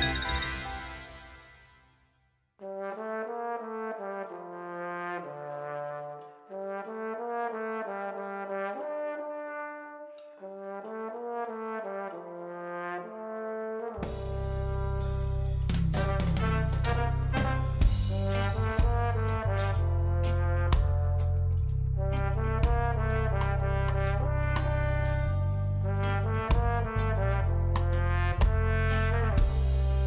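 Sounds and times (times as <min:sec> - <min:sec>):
music: 0:00.0 - 0:30.0
solo trombone melody: 0:02.6 - 0:30.0
reggae band with drums: 0:14.0 - 0:21.4, 0:27.8 - 0:30.0.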